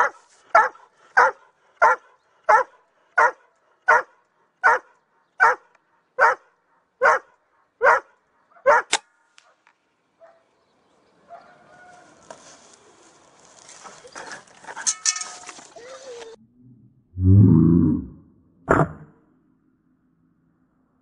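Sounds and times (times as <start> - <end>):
sharp crack: 8.9 - 9.8.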